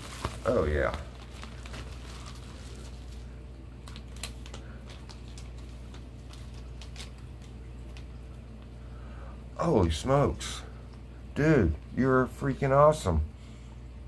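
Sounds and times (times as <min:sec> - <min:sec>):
plastic packaging crinkling: 0:00.0 - 0:08.8
steady low hum: 0:00.0 - 0:14.0.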